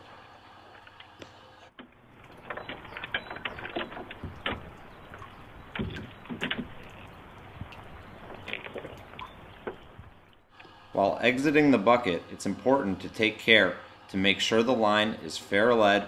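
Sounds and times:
climbing hardware clinking on metal: 2.2 - 7.0.

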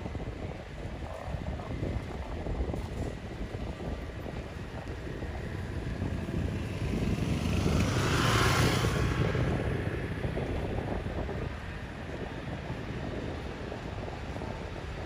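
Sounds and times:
wind rumble on microphone: 0.0 - 15.0
vehicle driving past: 6.0 - 10.7.

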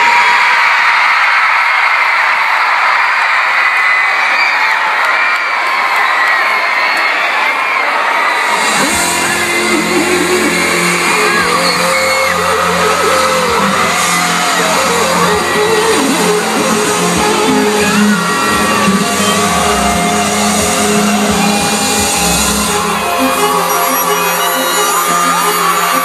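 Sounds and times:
crowd screaming and cheering: 0.0 - 26.0
intro music with low synth notes: 8.8 - 26.0.

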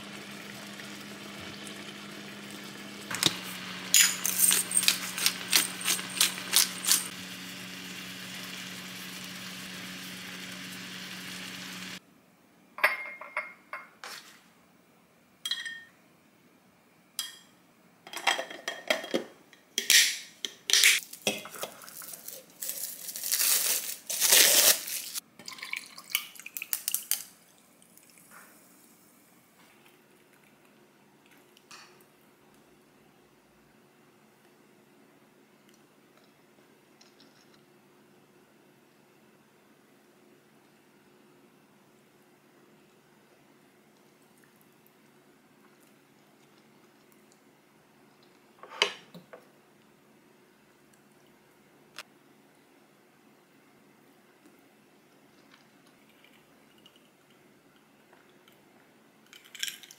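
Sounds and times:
steady hum and hiss: 0.0 - 59.9
glass and ceramic dishes clinking: 12.8 - 13.9, 15.5 - 15.9.

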